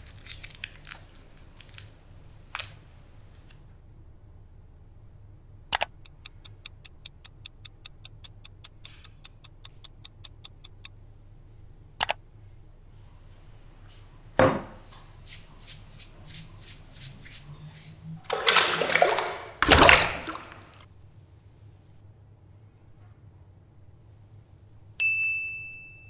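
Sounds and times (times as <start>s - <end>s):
sharp click: 5.7s - 10.9s, 12.0s - 12.2s
clock ticking: 5.7s - 11.0s.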